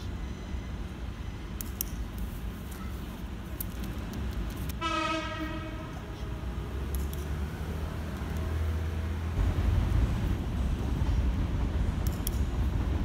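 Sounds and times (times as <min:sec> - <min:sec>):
low traffic rumble: 0:00.0 - 0:13.0
horn sounding: 0:04.8 - 0:06.2.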